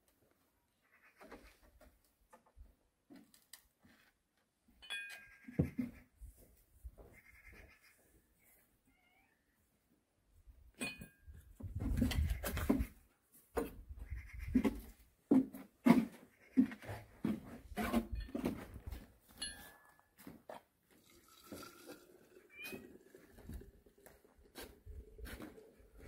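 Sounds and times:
porcelain teacups clinking: 21.0 - 23.6.

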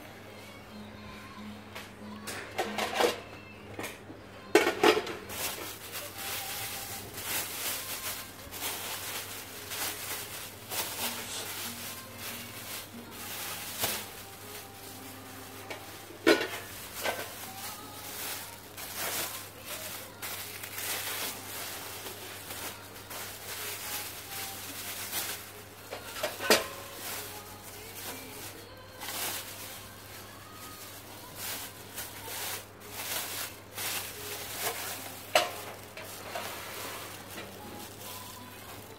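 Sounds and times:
plastic wrapping rustling: 4.6 - 38.9.

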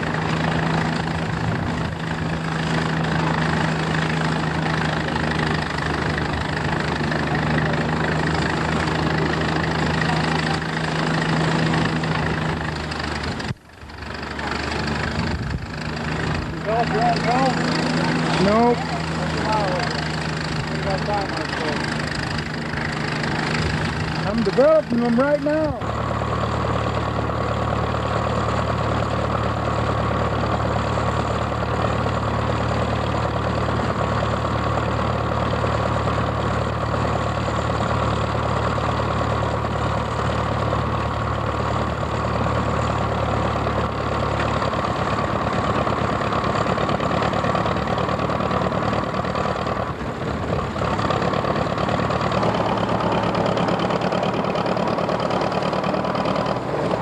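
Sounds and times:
old tractor engine clattering: 0.0 - 57.0.

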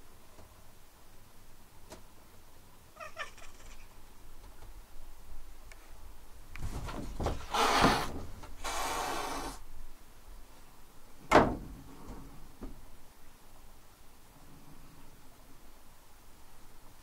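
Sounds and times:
sliding paper door scraping: 6.7 - 9.6.

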